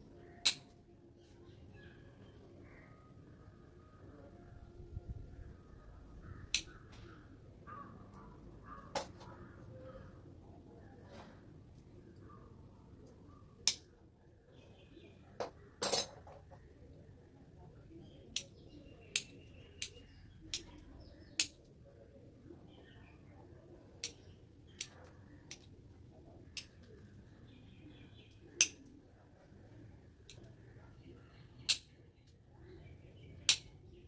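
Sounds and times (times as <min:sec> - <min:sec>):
garden scissors snipping twigs: 0:00.4 - 0:00.8, 0:13.6 - 0:13.8, 0:18.3 - 0:21.6, 0:24.0 - 0:25.7.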